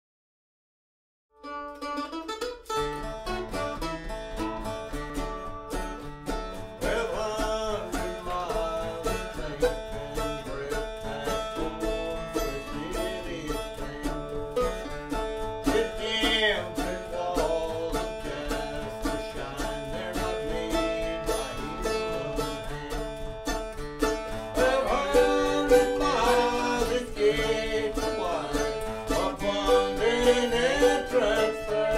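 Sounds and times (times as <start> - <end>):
acoustic guitar: 1.4 - 31.9
mandolin: 1.4 - 31.9.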